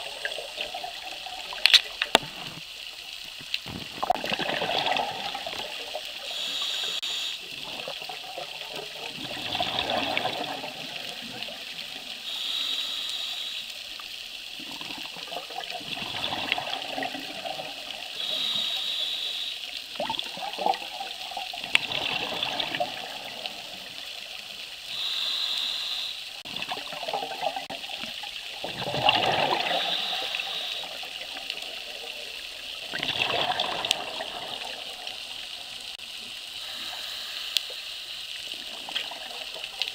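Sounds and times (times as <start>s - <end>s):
exhaled air bubbling: 0.0s - 12.3s, 14.5s - 18.6s, 19.9s - 25.1s, 26.4s - 36.0s, 38.5s - 39.9s
hiss of regulator inhalation: 6.1s - 7.5s, 12.1s - 14.1s, 18.1s - 19.9s, 24.1s - 26.4s, 29.7s - 31.6s, 36.6s - 38.6s.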